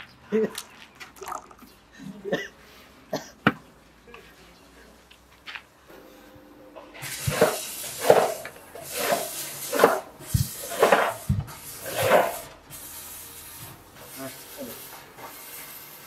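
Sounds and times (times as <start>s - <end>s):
scraping strokes on foam block: 7.2s - 12.5s.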